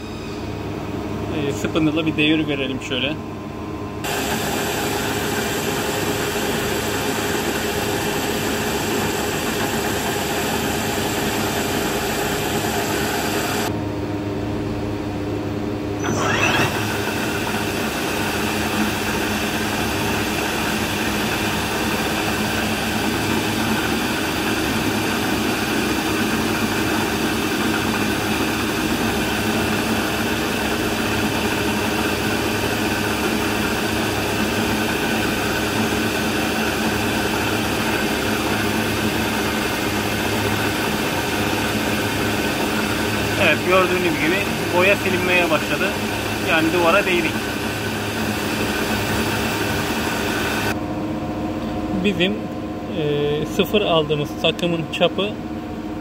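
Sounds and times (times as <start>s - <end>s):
machine hum with held tones: 0.0s - 56.0s
brief rising whine: 16.0s - 17.8s.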